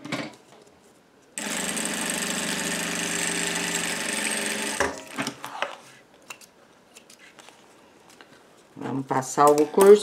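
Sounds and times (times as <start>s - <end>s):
sewing machine running: 1.4s - 5.2s.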